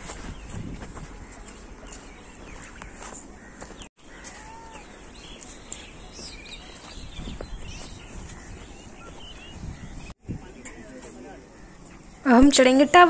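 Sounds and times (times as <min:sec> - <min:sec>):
wind rumble on microphone: 0:00.0 - 0:01.8, 0:06.2 - 0:11.0
birds chirping: 0:00.0 - 0:13.0.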